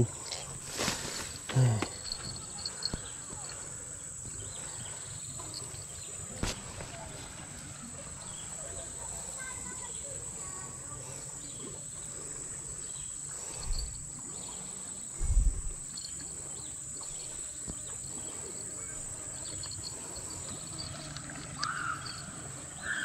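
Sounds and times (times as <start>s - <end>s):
high-pitched insect drone: 11.3s - 23.0s
low bumps: 15.1s - 16.1s.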